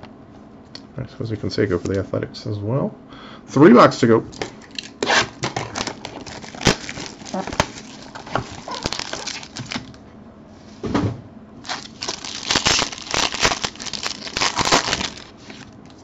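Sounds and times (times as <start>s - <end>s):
foil card pack crinkling: 4.7s - 10.0s, 11.6s - 16.0s.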